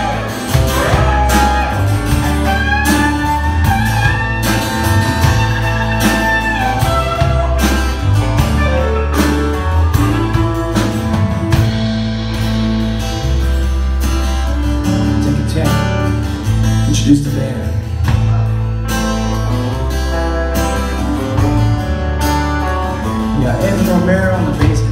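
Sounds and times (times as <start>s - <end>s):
steady drum beat: 0.0s - 13.2s
acoustic guitar strumming: 0.0s - 24.9s
bass: 0.0s - 24.9s
electric guitars: 0.0s - 24.9s.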